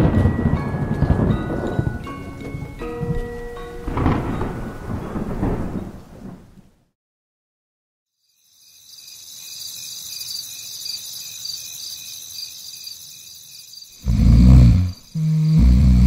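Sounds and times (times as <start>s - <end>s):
crickets chirping: 8.1s - 16.0s.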